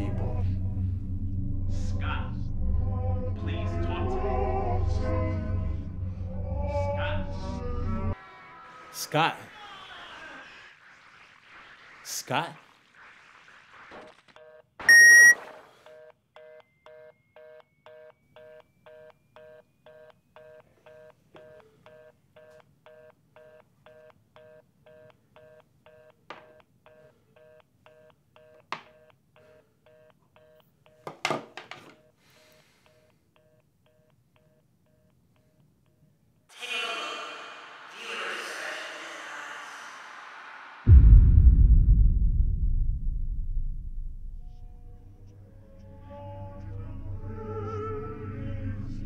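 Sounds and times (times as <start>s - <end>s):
fast busy signal beeping: 14.9s - 15.4s
short electronic beep: 14.9s - 15.4s.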